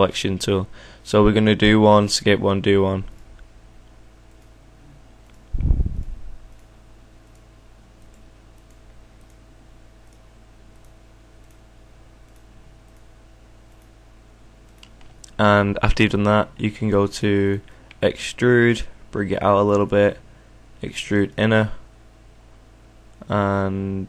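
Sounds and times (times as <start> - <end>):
low electrical hum: 0.0 - 24.0
faint mouse clicks: 6.5 - 9.4, 10.0 - 11.6, 12.2 - 13.1.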